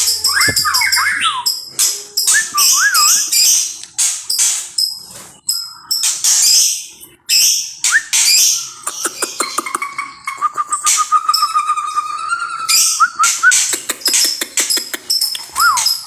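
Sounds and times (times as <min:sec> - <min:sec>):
bird wavy whistles: 0:00.2 - 0:01.6, 0:15.2 - 0:16.0.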